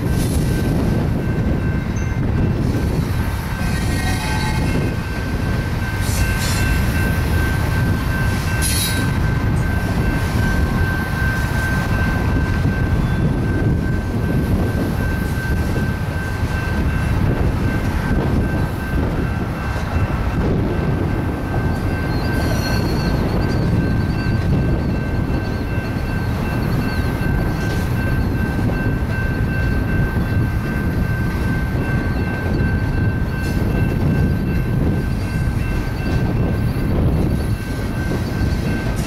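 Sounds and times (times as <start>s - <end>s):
train wheels rumbling on rail: 0.0s - 39.0s
wheel squeal: 21.7s - 28.4s.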